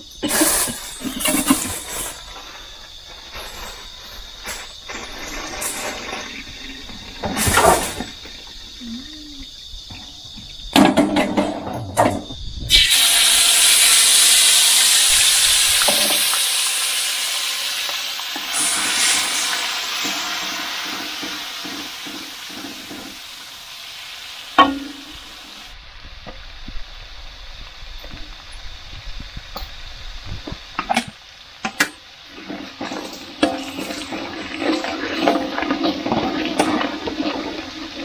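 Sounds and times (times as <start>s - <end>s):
paste sizzling in hot oil: 0.2s - 8.9s, 12.7s - 25.8s, 30.6s - 38.0s
spatula stirring in wok: 32.3s - 38.0s.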